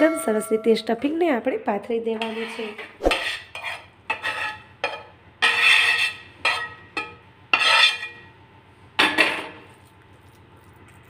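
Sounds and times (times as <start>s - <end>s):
metal spoon scraping pan: 2.0s - 8.3s.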